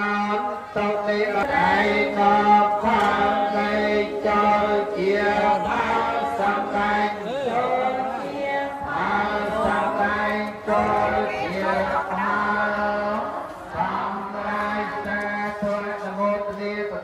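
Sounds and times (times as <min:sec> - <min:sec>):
monks chanting in unison: 0:00.0 - 0:17.0.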